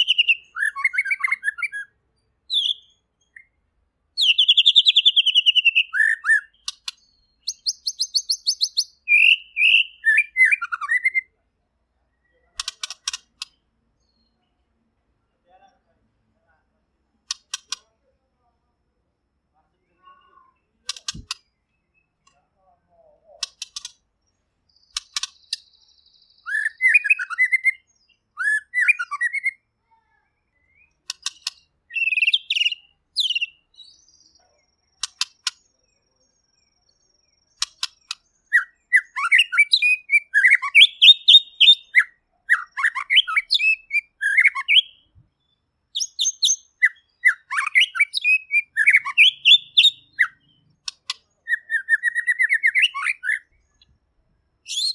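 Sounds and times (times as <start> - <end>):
bird singing whistled phrases: 0.0 - 3.6, 4.2 - 11.3, 25.5 - 29.6, 30.4 - 34.3, 38.4 - 45.1, 46.0 - 50.6, 51.4 - 53.9, 54.6 - 54.9
sharp clicking bird notes: 5.9 - 9.8, 12.5 - 13.7, 17.2 - 17.9, 20.8 - 21.6, 23.3 - 24.1, 24.8 - 25.8, 30.8 - 33.5, 34.8 - 35.7, 37.5 - 39.8, 46.0 - 53.4.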